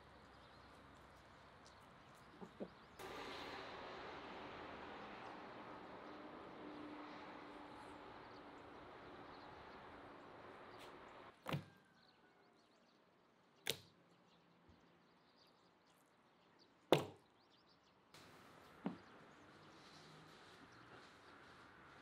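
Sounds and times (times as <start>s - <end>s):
steady outdoor hiss: 0.0s - 11.6s, 17.9s - 22.0s.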